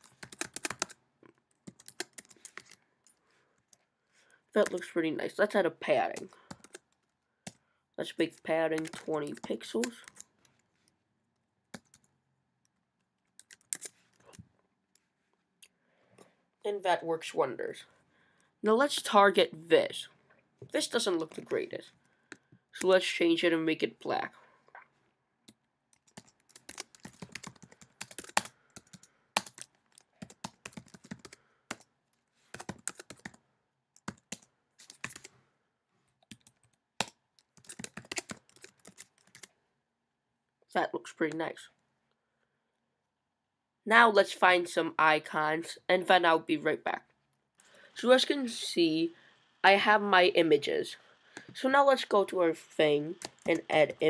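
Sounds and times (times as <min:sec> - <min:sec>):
computer keyboard typing: 0:00.0 - 0:02.8, 0:06.1 - 0:07.6, 0:08.4 - 0:10.3, 0:11.7 - 0:12.1, 0:13.4 - 0:14.3, 0:25.5 - 0:31.9, 0:32.5 - 0:33.4, 0:34.0 - 0:35.3, 0:36.2 - 0:39.5, 0:53.2 - 0:53.8.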